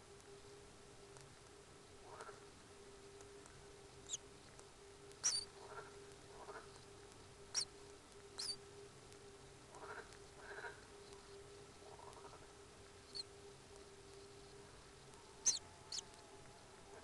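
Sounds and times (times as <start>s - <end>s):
soft low chirps: 0.0s - 16.7s
high squeaky bird calls: 4.0s - 4.2s, 5.2s - 5.5s, 7.5s - 7.7s, 8.4s - 8.6s, 13.1s - 13.3s, 15.4s - 16.2s.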